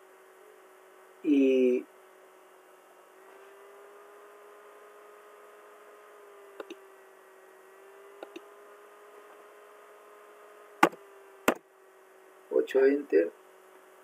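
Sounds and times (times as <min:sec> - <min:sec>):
electrical hum: 0:00.0 - 0:14.0
computer mouse clicks: 0:06.6 - 0:06.8, 0:08.2 - 0:08.4.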